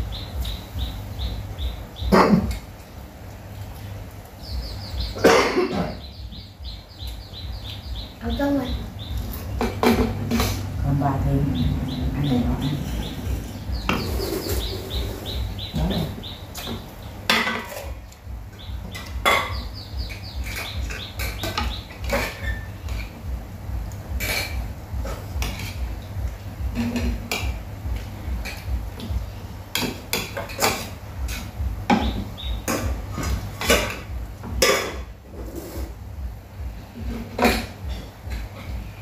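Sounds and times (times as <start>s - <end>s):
low rumble: 8.7s - 16.3s.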